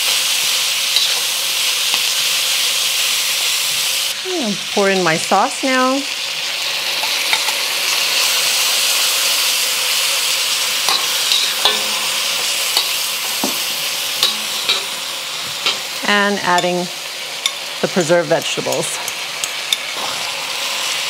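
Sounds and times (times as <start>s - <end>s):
stir-fry sizzling in a wok: 0.0s - 21.0s
metal spatula scraping a wok: 0.9s - 1.4s, 10.8s - 16.0s.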